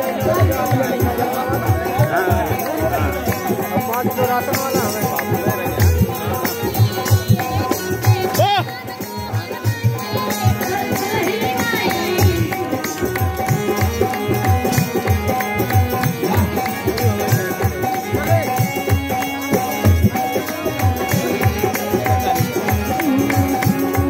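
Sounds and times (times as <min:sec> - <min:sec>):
hand-drum beat: 0:00.0 - 0:24.0
woman singing into a microphone: 0:05.4 - 0:14.8, 0:20.0 - 0:24.0.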